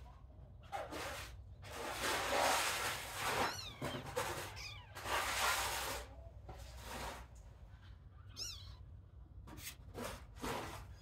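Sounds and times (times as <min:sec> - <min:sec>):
rustling noise: 0:00.8 - 0:07.6
kittens meowing: 0:03.4 - 0:05.0, 0:08.2 - 0:08.9.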